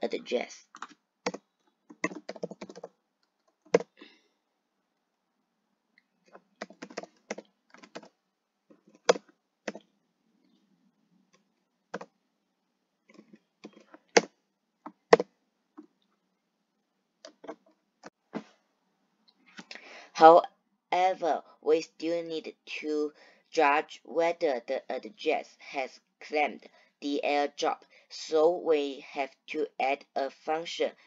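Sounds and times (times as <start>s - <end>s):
typing on computer keyboard: 0.8s - 4.0s, 6.6s - 8.1s.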